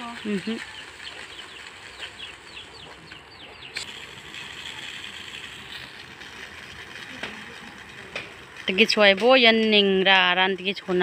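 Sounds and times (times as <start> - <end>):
electric fan: 0.0 - 11.0.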